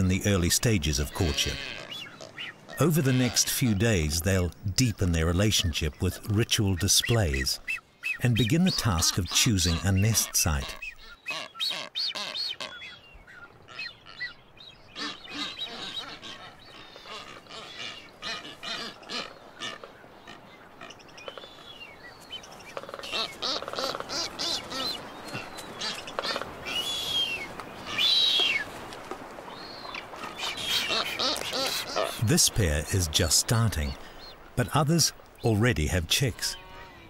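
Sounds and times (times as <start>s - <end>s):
birds calling: 0.0s - 37.0s
bird honking: 1.2s - 3.4s, 9.0s - 13.0s, 13.6s - 21.5s, 22.7s - 25.2s, 30.2s - 32.2s.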